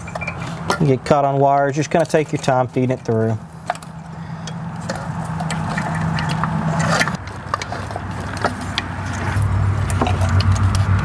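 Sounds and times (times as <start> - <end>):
plastic clicks and scraping: 0.2 - 11.0
steady low hum: 3.0 - 11.0.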